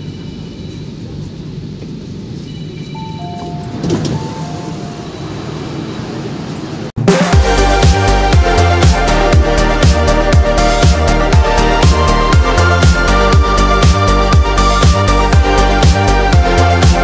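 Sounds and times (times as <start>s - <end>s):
train interior rumble: 0.0s - 8.4s
train doors clattering open: 2.6s - 6.8s
loud music: 7.0s - 17.0s.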